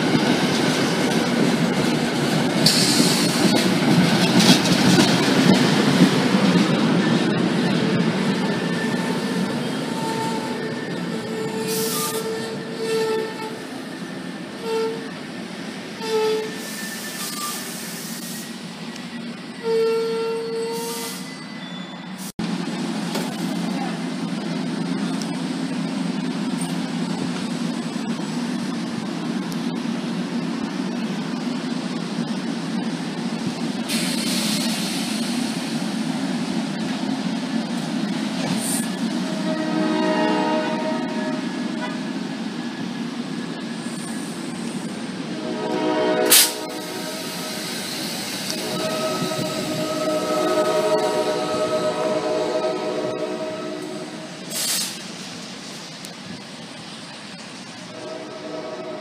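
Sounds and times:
train wheels rumbling on rail: 0.0s - 59.0s
loud hiss: 2.6s - 3.5s, 33.8s - 35.8s, 46.3s - 53.3s, 53.9s - 58.0s
brief hisses: 54.5s - 55.2s.

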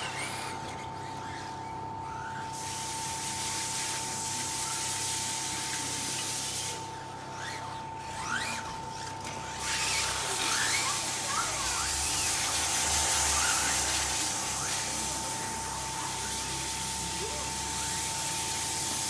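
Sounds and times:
rising motor whines: 6.7s - 19.0s.

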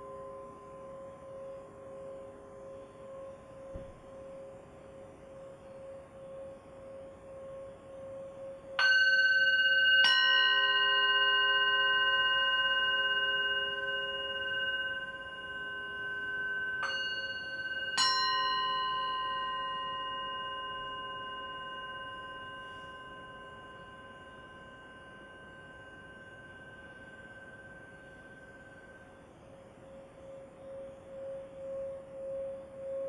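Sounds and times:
metal singing bowl struck ringing: 8.8s - 29.0s.

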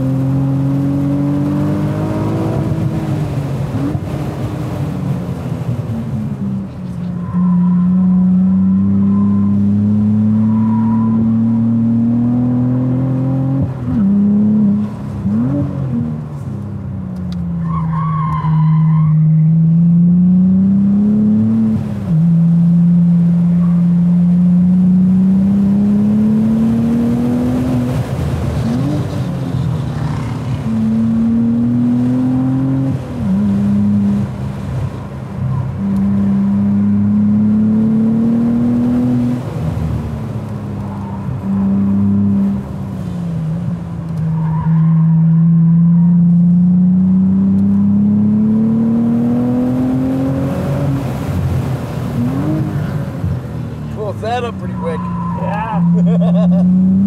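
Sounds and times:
car engine revving: 0.0s - 16.6s, 19.2s - 57.0s
tire squeal: 7.1s - 8.1s, 9.0s - 9.5s, 10.4s - 11.5s, 17.6s - 19.6s, 35.0s - 35.9s, 40.8s - 41.7s, 44.2s - 46.2s, 54.6s - 56.0s.

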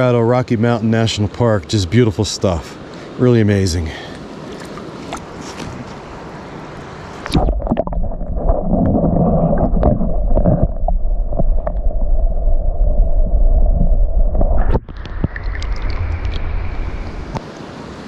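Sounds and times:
wind and water hiss: 0.0s - 18.0s
water gurgling: 7.2s - 17.7s
muffled underwater rumble: 7.3s - 17.4s.

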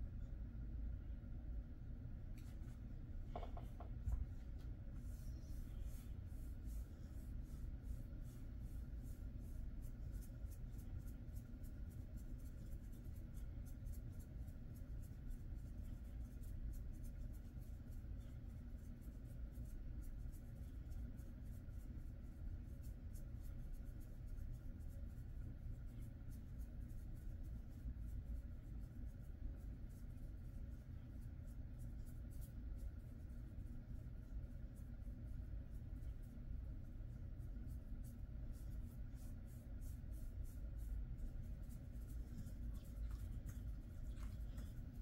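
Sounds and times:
low room rumble: 0.0s - 45.0s
fingers scratching dog fur: 3.3s - 21.6s, 22.9s - 45.0s.

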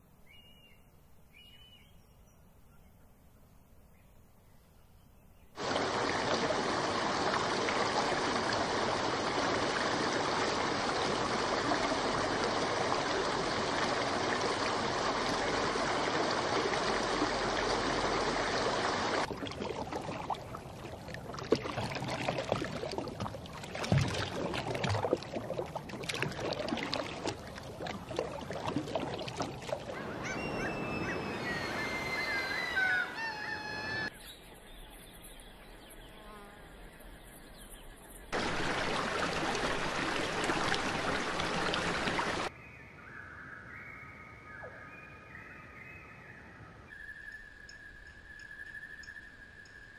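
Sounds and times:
duck dabbling in water: 19.1s - 31.2s
twittering bird calls: 29.9s - 36.4s.

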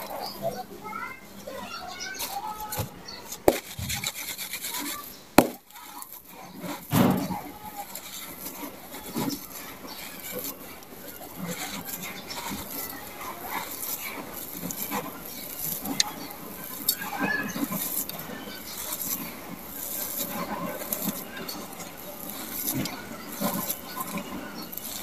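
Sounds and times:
small stones clicking: 2.2s - 7.0s
hands crumbling gritty sand: 3.3s - 25.0s.

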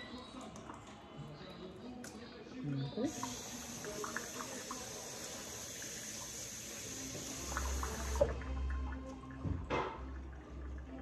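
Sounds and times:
faucet running into plastic bowl: 3.1s - 11.0s.

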